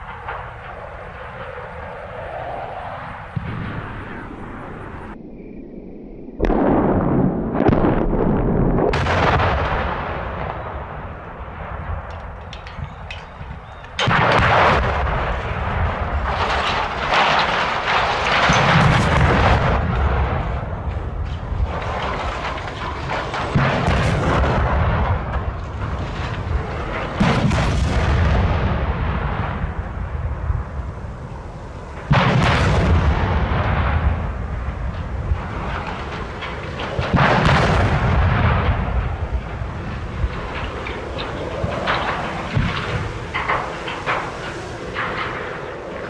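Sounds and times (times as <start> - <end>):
explosive blasts: 0.0 - 5.2, 6.4 - 46.0
sharp cracks: 6.4 - 28.2, 31.9 - 46.0
rumbling of towers falling: 6.4 - 30.9, 31.9 - 46.0.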